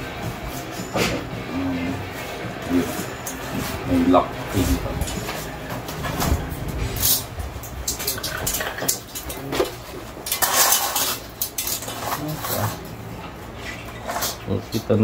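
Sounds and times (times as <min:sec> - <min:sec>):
metal blind fittings clinking: 0:04.5 - 0:15.0.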